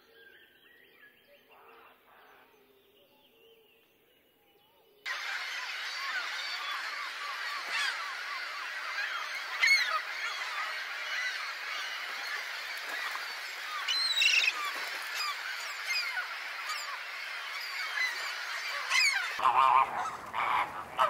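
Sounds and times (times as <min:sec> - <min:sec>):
flamingos honking: 0:05.1 - 0:21.0
gulls chattering calls: 0:05.1 - 0:21.0.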